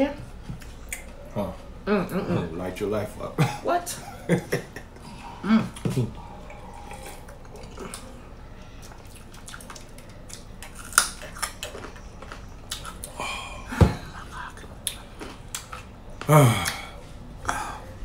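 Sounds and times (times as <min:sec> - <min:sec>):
murmured vocal sounds: 0:05.0 - 0:08.4, 0:16.2 - 0:18.0.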